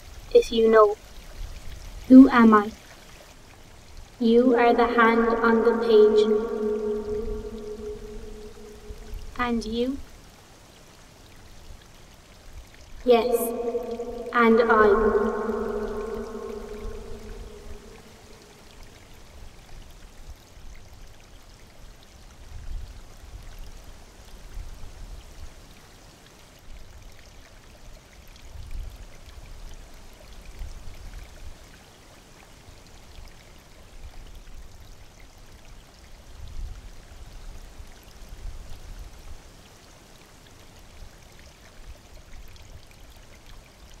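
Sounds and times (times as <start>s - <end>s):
steady rain: 0.0s - 44.0s
low rumble: 4.5s - 9.4s, 13.1s - 18.4s.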